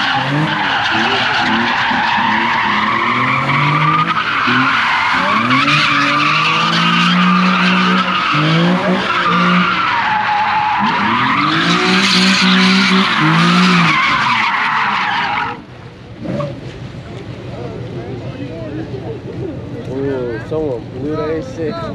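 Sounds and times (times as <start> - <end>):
car tyres squealing: 0.0 - 16.7
engines revving: 0.0 - 16.8.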